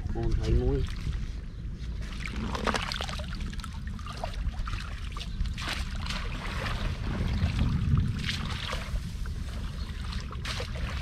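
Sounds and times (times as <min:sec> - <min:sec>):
low rumble: 0:00.0 - 0:11.0
water sloshing and splashing: 0:00.0 - 0:11.0.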